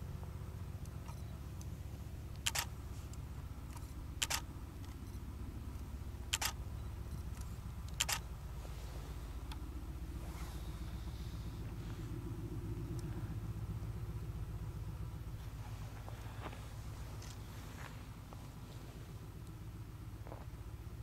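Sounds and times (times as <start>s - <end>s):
low rumble: 0.0s - 21.0s
camera shutter clicking: 2.4s - 2.7s, 3.7s - 4.5s, 6.3s - 6.6s, 7.9s - 8.2s.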